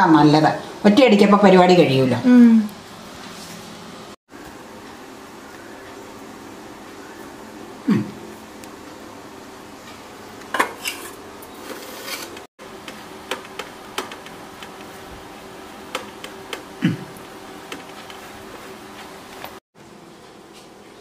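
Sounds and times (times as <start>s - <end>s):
faint steady hum: 4.4s - 10.5s.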